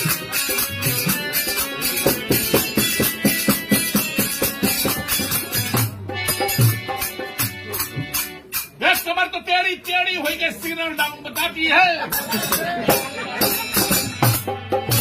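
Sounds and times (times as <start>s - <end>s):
harmonium chords: 0.0s - 9.7s, 10.3s - 15.0s
dholak drum strokes: 0.0s - 15.0s
high percussion ticking: 0.0s - 15.0s.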